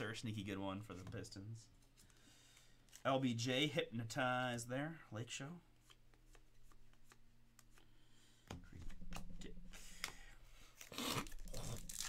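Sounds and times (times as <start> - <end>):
low steady hum: 0.0 - 12.0
card and wrapper rustling: 10.0 - 12.0.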